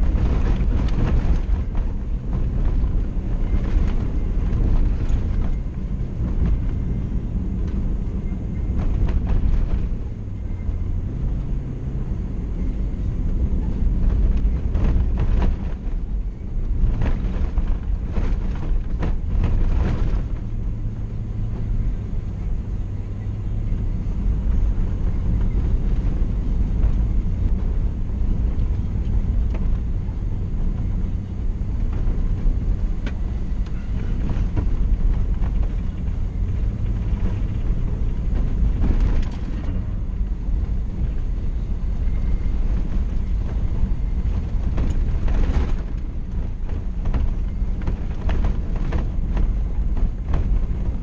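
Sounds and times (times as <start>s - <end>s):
engine and tyres rumbling: 0.0s - 51.0s.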